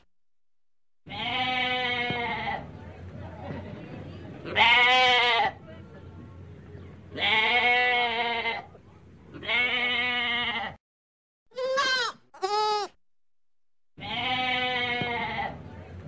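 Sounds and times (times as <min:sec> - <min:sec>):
goats bleating: 0:01.1 - 0:02.6, 0:07.2 - 0:08.7, 0:09.4 - 0:10.8, 0:11.5 - 0:12.9, 0:14.0 - 0:15.6.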